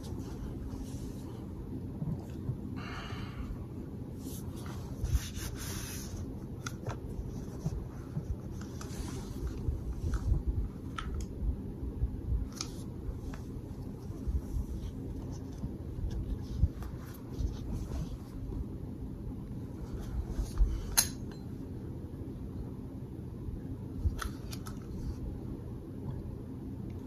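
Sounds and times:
steady low hum: 0.0s - 27.0s
cloth rustling: 12.5s - 18.8s.

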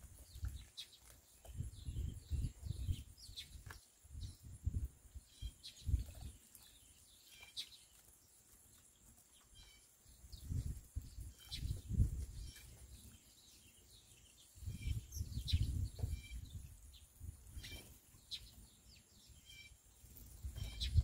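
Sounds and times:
sparrows chirping: 0.0s - 21.0s
wind gusts on microphone: 1.5s - 6.3s, 10.3s - 12.6s, 14.5s - 17.8s, 20.4s - 21.0s.

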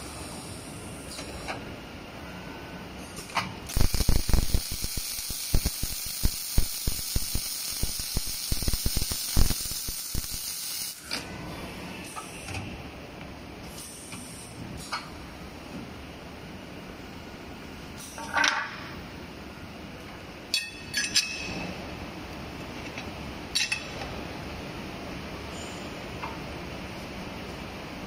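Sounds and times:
machine hum: 3.7s - 10.6s
arc welding sizzle: 3.7s - 11.1s.

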